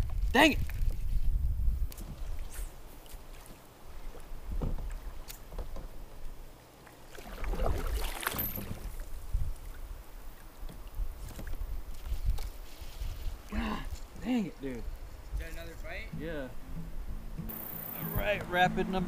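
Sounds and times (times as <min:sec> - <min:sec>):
paddle splashing in water: 0:02.0 - 0:13.5
knocks against kayak hull: 0:04.5 - 0:04.9.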